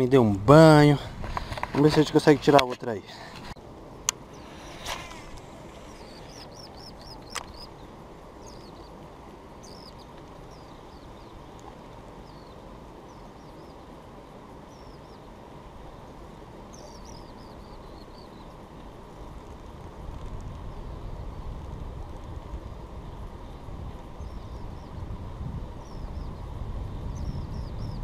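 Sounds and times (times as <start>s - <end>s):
small birds chirping: 4.2s - 21.0s, 23.4s - 28.0s.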